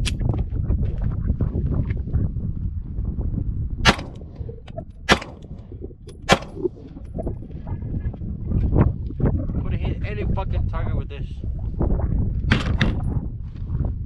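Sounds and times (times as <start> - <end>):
pistol shots: 3.8 - 4.2, 5.1 - 5.5, 6.3 - 6.6.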